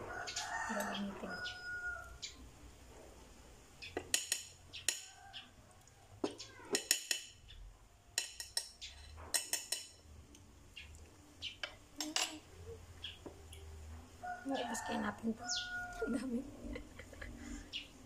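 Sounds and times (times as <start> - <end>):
spoon and jar clinking on tableware: 4.0 - 5.1, 6.2 - 7.4, 8.2 - 10.1, 11.6 - 12.4.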